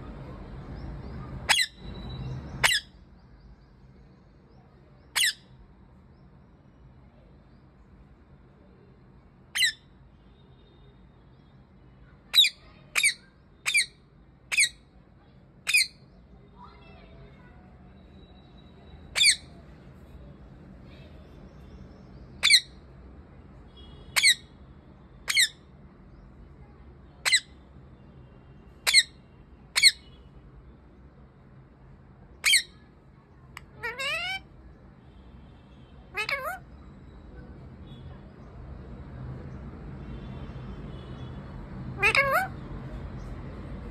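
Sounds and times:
parakeet screeching: 0:01.4 - 0:03.0, 0:05.1 - 0:05.5, 0:09.5 - 0:09.8, 0:12.3 - 0:14.8, 0:15.6 - 0:16.0, 0:19.1 - 0:19.5, 0:22.4 - 0:22.8, 0:24.2 - 0:24.5, 0:25.3 - 0:25.6, 0:27.2 - 0:27.6, 0:28.8 - 0:30.1, 0:32.4 - 0:32.9, 0:33.6 - 0:34.5, 0:36.1 - 0:36.8, 0:42.0 - 0:42.6.

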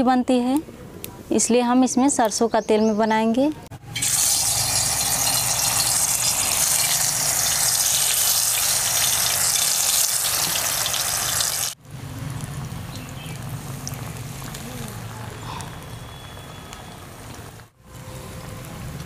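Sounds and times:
batter sizzling in hot oil: 0:04.0 - 0:15.1.

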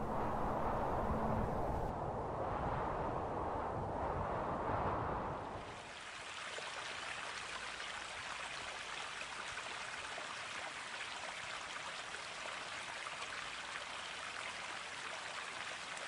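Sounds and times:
stream water running: 0:00.0 - 0:01.9, 0:05.4 - 0:16.0
low rumbling noise: 0:00.0 - 0:05.6.

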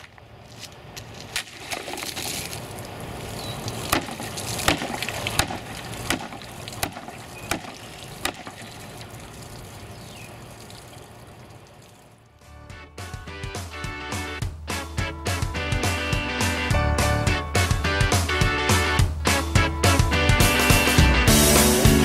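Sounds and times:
water spilling: 0:01.2 - 0:12.4
sword chopping plastic jugs: 0:03.8 - 0:09.0.

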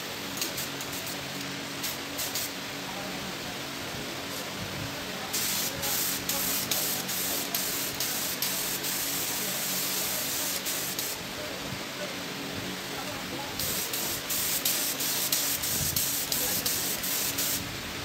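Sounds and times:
spray gun hissing: 0:00.0 - 0:02.7, 0:05.2 - 0:11.4, 0:13.0 - 0:17.8.

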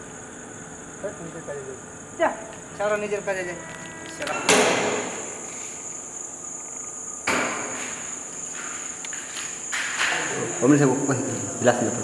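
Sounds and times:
crickets chirping: 0:00.0 - 0:12.0
sudden ringing thuds: 0:04.3 - 0:05.4.

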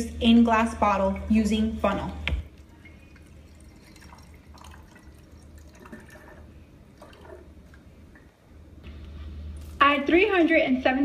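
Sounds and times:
liquid dripping and trickling: 0:02.5 - 0:08.3.

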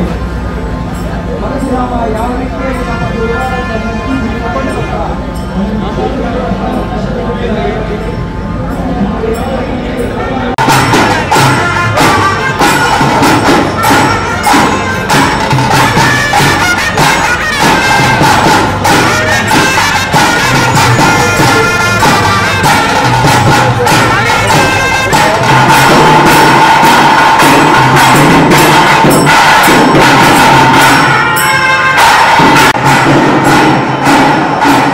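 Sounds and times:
dense drumming and percussion: 0:00.0 - 0:34.9
wind instrument holding high note: 0:09.4 - 0:34.9.

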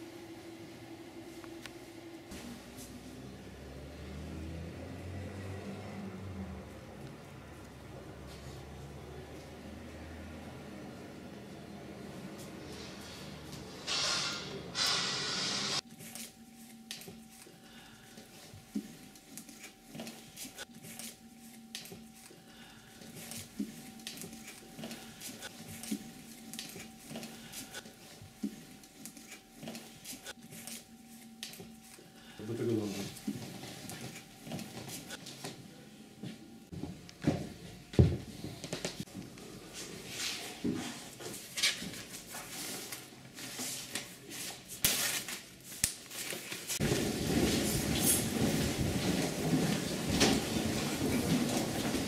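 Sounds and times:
objects rustling and tapping: 0:15.8 - 0:35.6, 0:36.2 - 0:52.0
faint steady hum: 0:15.8 - 0:39.7.

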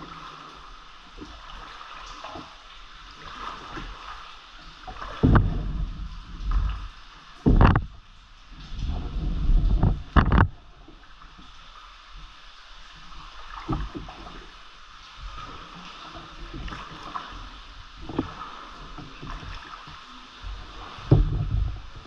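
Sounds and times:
soft paddle strokes in water: 0:00.0 - 0:22.0
paddle knocks and splashes: 0:01.1 - 0:11.6, 0:13.3 - 0:14.6, 0:15.2 - 0:22.0.

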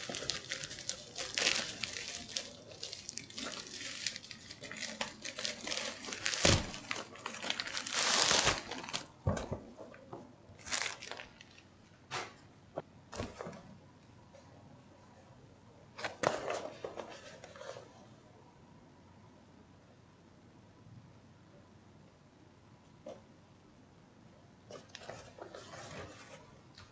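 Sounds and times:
bubble mailer crinkling: 0:00.0 - 0:09.2, 0:10.6 - 0:11.6.

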